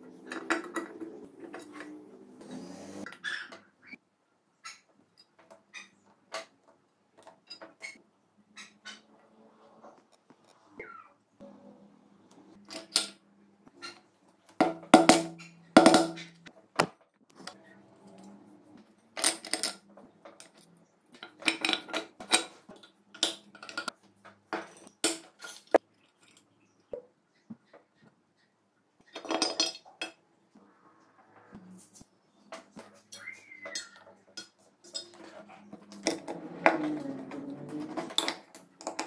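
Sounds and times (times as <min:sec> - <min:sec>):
metal parts clinking and knocking: 0:00.1 - 0:02.0, 0:14.6 - 0:16.4, 0:19.2 - 0:23.9, 0:24.6 - 0:26.4, 0:29.1 - 0:30.2, 0:33.0 - 0:39.0.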